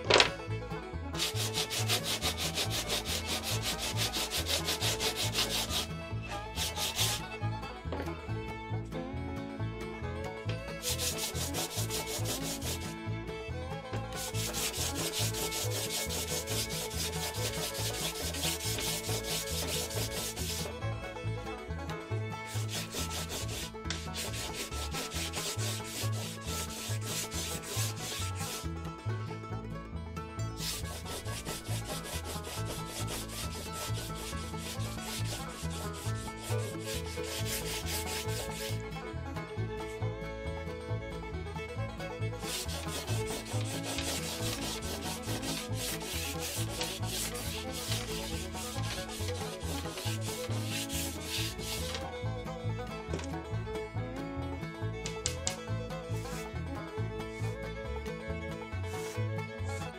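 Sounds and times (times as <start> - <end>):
faint music with bass line: 0.0 - 59.9
sandpaper rubbing on rod: 1.2 - 5.9, 6.6 - 7.3, 10.8 - 12.9, 14.2 - 20.7, 22.5 - 28.6, 30.6 - 38.8, 42.4 - 52.1, 59.0 - 59.2.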